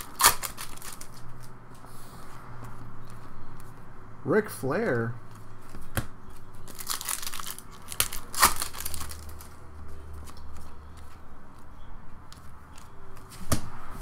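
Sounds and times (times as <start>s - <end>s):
foil wrapper crinkling: 0.0s - 1.5s, 6.6s - 9.6s
trading cards rustling: 0.0s - 1.6s, 5.3s - 13.3s.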